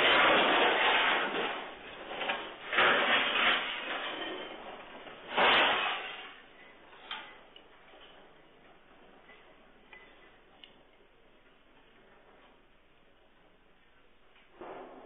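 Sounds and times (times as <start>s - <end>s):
debris falling and crashing: 0.0s - 7.4s.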